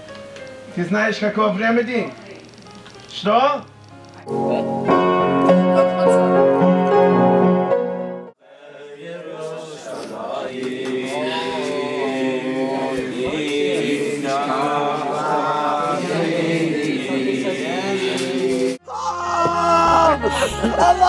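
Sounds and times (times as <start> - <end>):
piano chords: 0.0 - 8.4
boys singing together: 8.4 - 18.8.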